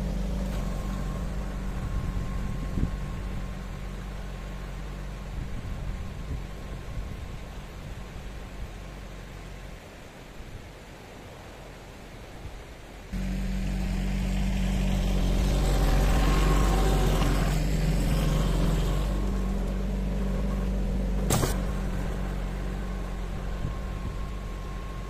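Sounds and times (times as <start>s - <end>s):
tractor diesel engine running: 0.0s - 10.0s, 13.1s - 25.0s
sharp click: 21.3s - 21.7s.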